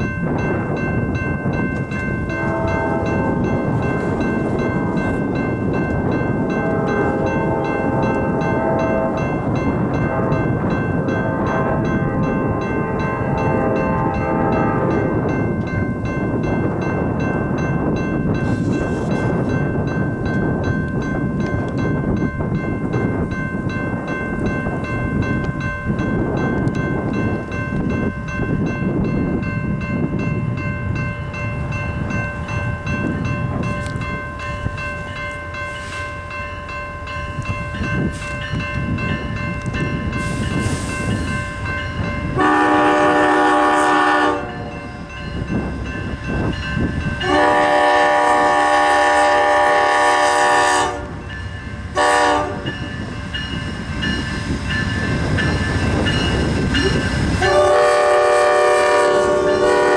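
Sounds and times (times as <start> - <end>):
train rumbling: 0.0 - 59.9
locomotive horn blasts: 2.3 - 3.6, 6.4 - 15.2, 42.4 - 44.9, 47.2 - 51.2, 51.9 - 52.8, 56.8 - 59.9.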